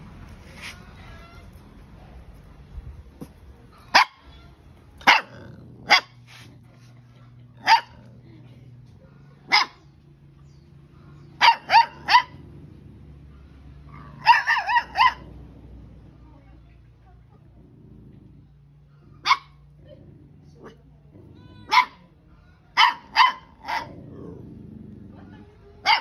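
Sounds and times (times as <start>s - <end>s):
puppy yapping: 14.0s - 15.3s, 21.3s - 22.1s.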